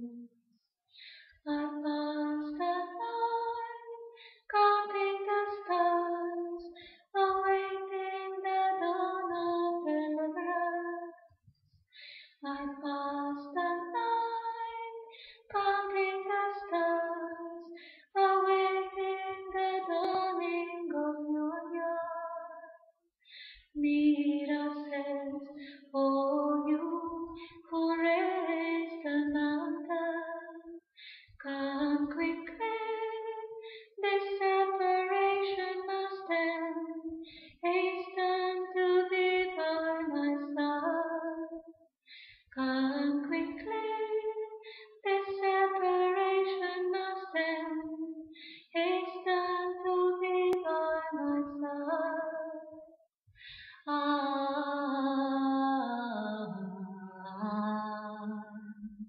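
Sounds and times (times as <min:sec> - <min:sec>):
woman singing a cappella: 0:00.0 - 0:00.3, 0:01.0 - 0:11.4, 0:12.3 - 0:22.9, 0:23.5 - 0:41.8, 0:42.4 - 0:52.9, 0:53.7 - 0:59.0
short breaths: 0:00.9 - 0:01.4, 0:11.8 - 0:12.4, 0:15.1 - 0:15.5, 0:23.2 - 0:23.7, 0:30.9 - 0:31.4, 0:42.0 - 0:42.5, 0:53.3 - 0:53.8.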